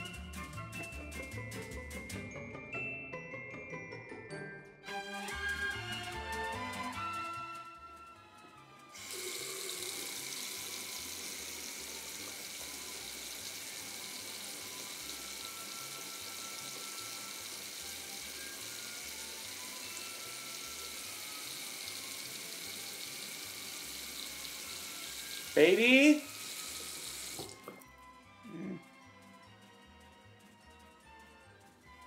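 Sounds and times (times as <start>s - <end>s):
tap water running: 4.9s - 7.6s, 8.5s - 28.0s.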